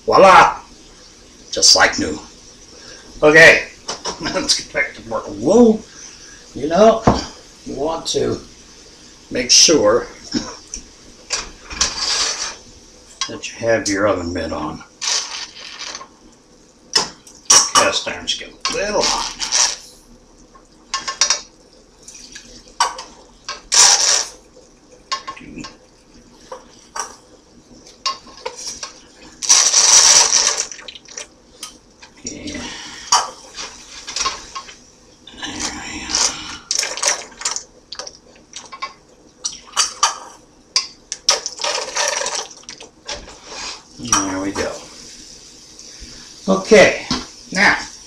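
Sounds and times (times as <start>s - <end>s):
baster sucking and squirting grease: 15.0s - 16.1s, 28.4s - 31.3s.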